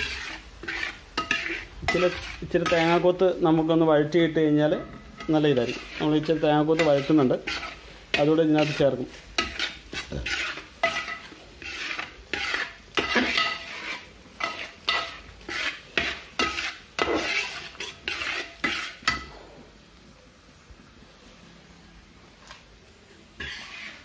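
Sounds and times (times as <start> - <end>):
metal spoon scraping a pan: 0.0 - 19.7, 23.3 - 24.0
food sizzling: 0.0 - 24.0.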